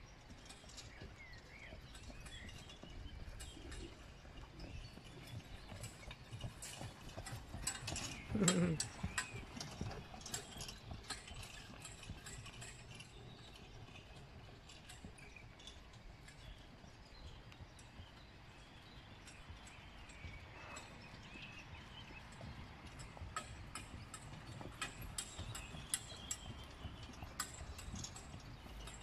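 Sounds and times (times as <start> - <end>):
hooves clip-clopping: 0.0 - 29.0
carriage wheels and fittings rattling: 0.2 - 29.0.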